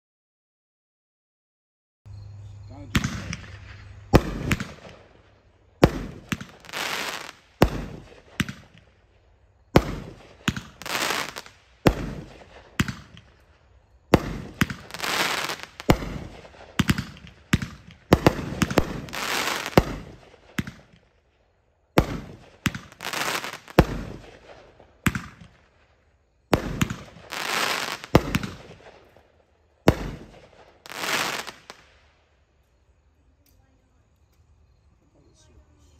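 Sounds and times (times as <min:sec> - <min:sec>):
fireworks sharp reports: 0:02.6 - 0:08.9, 0:09.7 - 0:13.5, 0:14.1 - 0:21.0, 0:22.0 - 0:25.7, 0:26.5 - 0:29.2, 0:29.8 - 0:31.9
fireworks crackle: 0:02.9 - 0:21.3, 0:21.9 - 0:32.7.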